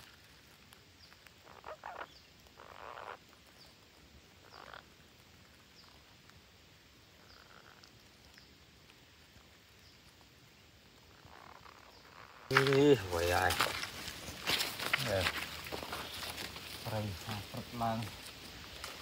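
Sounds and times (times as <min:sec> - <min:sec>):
raspy animal calls: 0:01.4 - 0:03.3, 0:04.4 - 0:05.0.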